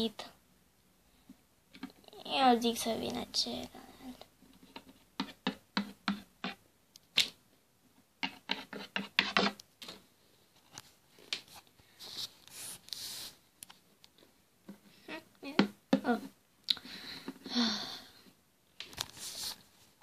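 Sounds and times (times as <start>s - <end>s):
plastic toys tapping on wooden desk: 4.7s - 6.6s, 8.2s - 10.0s, 15.5s - 16.1s
rustling handling noise: 18.8s - 20.0s.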